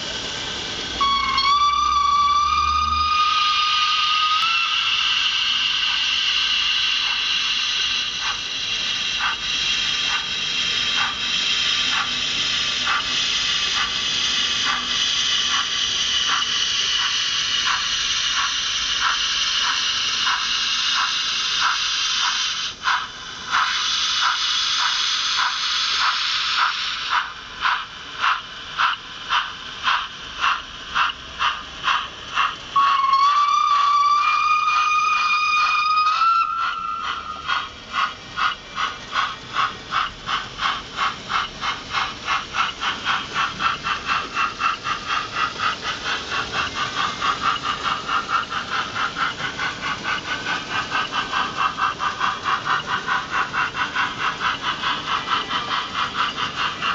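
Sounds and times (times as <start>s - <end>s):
steam hiss with rhythmic chuffs: 0.0s - 56.9s
steam whistle: 1.0s - 6.7s, 32.8s - 37.5s.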